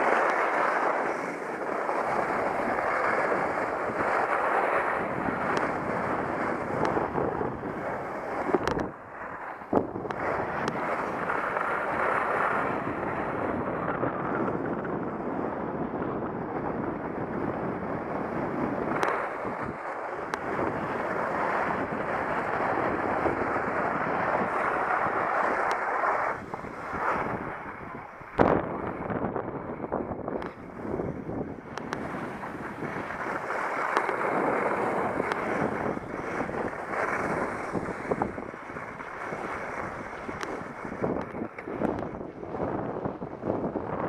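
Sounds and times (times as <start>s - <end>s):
skis hissing over snow: 0.0s - 13.3s, 18.3s - 28.2s, 32.0s - 41.2s
wind rushing on microphone: 0.0s - 44.0s
faint clicks: 8.4s - 8.9s, 19.0s - 19.2s, 31.7s - 32.1s, 33.8s - 34.3s, 40.4s - 42.1s.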